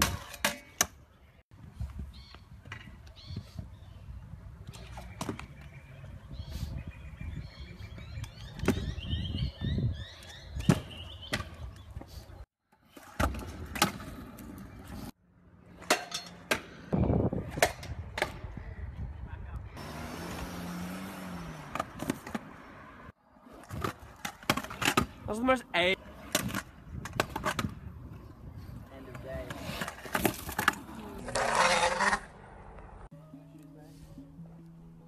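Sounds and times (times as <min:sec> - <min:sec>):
scooter wheels rolling on concrete: 0:07.7 - 0:33.1.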